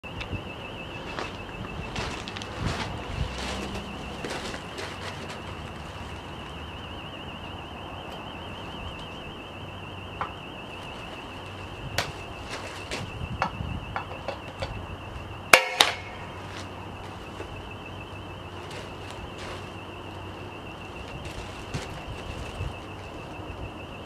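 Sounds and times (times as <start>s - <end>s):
warbling high tone: 0.0s - 24.0s.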